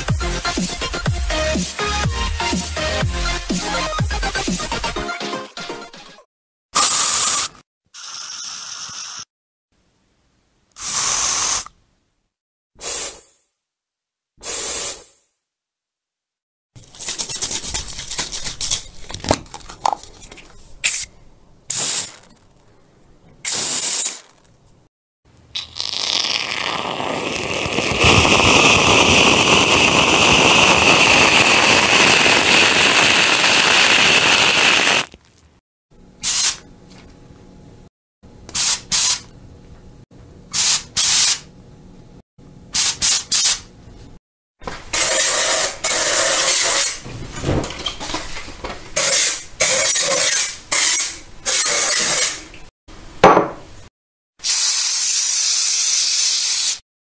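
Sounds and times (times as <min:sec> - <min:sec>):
aerosol can spraying: 0:10.8 - 0:11.7, 0:21.7 - 0:22.2, 0:23.5 - 0:24.4, 0:36.2 - 0:36.6, 0:40.6 - 0:41.4, 0:45.0 - 0:47.0, 0:49.0 - 0:52.4, 0:54.4 - 0:56.8.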